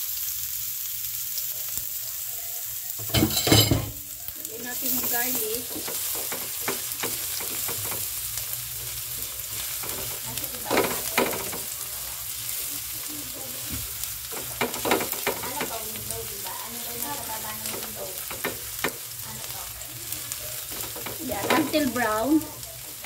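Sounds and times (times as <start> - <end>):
garlic sizzling in oil: 0.0 - 23.0
spatula scraping pan: 4.6 - 11.8, 12.5 - 23.0.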